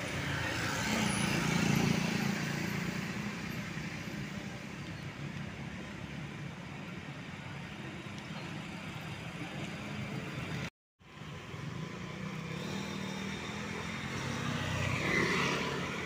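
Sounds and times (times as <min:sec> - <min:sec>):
vehicle passing close by: 0:12.4 - 0:16.0.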